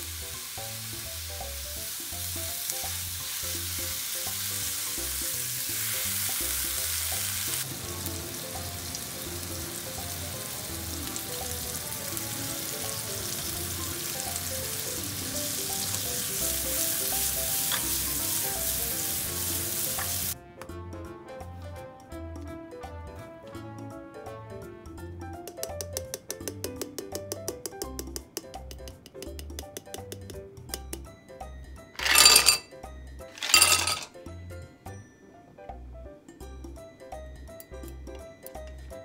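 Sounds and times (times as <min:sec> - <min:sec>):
apples sizzling in a frying pan: 0:00.0 - 0:20.4.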